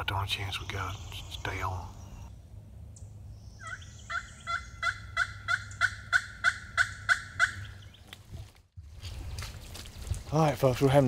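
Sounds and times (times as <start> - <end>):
turkey call yelps: 3.6 - 7.9.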